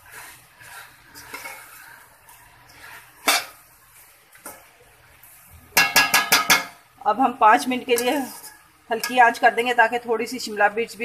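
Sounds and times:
spoon scraping vegetables: 0.0 - 5.4, 7.8 - 9.8
spoon clanking on pan: 5.8 - 6.8, 7.9 - 9.4.

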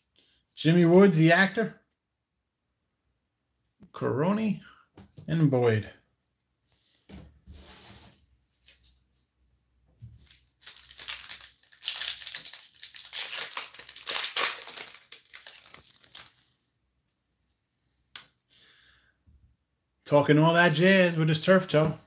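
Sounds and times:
foil wrapper tearing and crinkling: 10.3 - 16.5.

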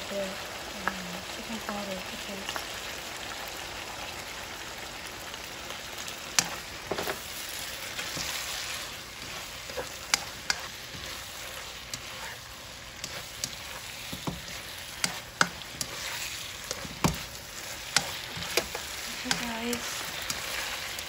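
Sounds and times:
food sizzling in a frying pan: 0.0 - 21.0
spatula scraping a pan: 6.4 - 21.0.

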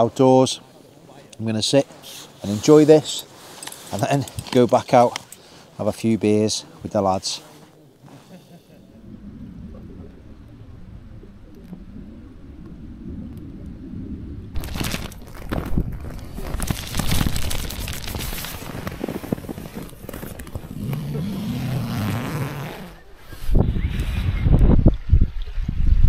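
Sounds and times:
low rumble: 8.6 - 18.0
rustling and crinkling nylon: 14.6 - 23.0.

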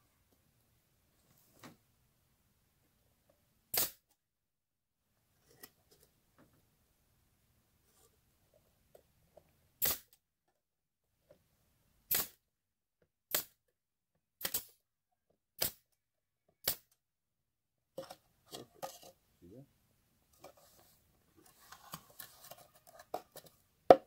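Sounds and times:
nail gun firing into wood: 3.8 - 4.0, 9.8 - 10.1, 12.1 - 12.4, 13.3 - 13.6.

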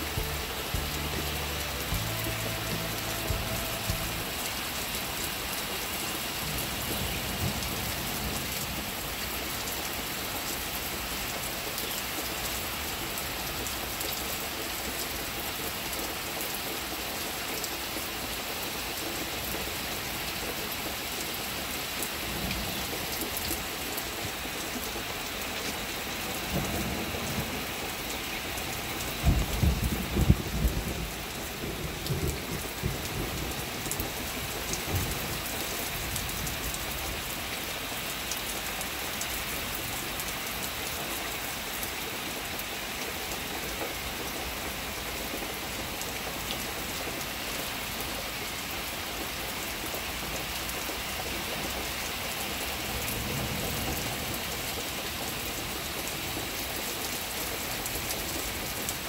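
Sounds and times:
steady rain: 0.0 - 59.0
low rumble of thunder: 29.2 - 34.2.

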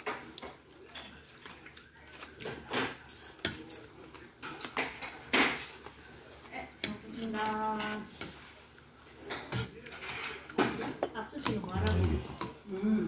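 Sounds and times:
utensils clinking on ceramic bowls: 2.2 - 5.8, 9.2 - 12.6.

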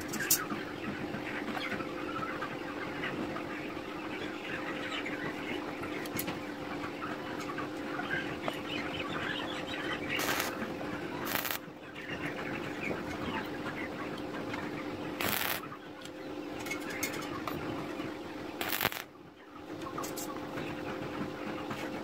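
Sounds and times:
welding arc hiss: 10.2 - 10.6, 11.2 - 11.6, 15.2 - 15.6, 18.6 - 19.1.

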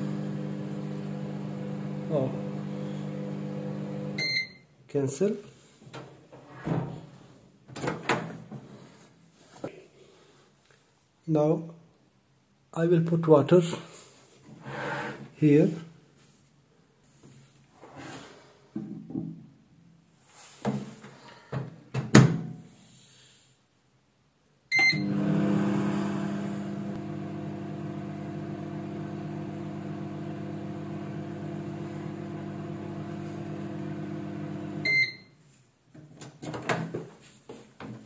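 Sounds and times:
microwave oven humming: 0.0 - 4.5, 24.7 - 35.2
microwave beep: 3.8 - 4.7, 24.7 - 26.4, 34.6 - 35.4
glass and door clicks and knocks: 7.7 - 8.3.

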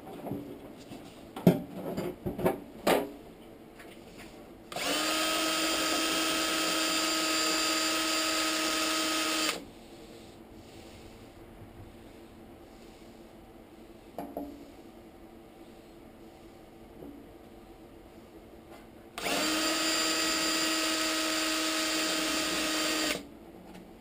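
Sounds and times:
cordless drill running: 4.7 - 9.6, 19.2 - 23.2.

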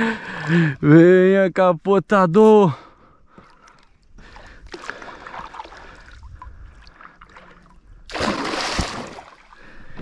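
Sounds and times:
water lapping: 2.8 - 10.0
fish splashing: 4.7 - 9.8.

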